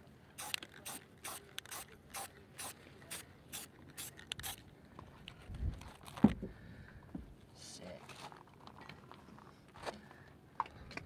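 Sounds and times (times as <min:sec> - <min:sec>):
spray paint can hissing: 0:00.4 - 0:04.6.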